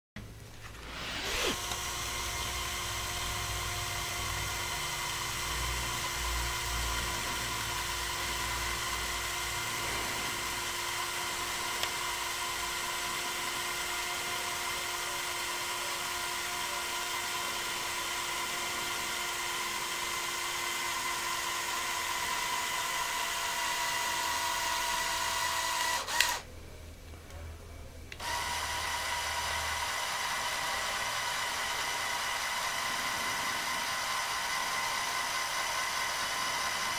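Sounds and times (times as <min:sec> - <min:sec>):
toy electric motors whirring: 0:00.7 - 0:26.5, 0:28.2 - 0:36.9
motor stopping click: 0:01.0 - 0:06.1, 0:25.4 - 0:26.4.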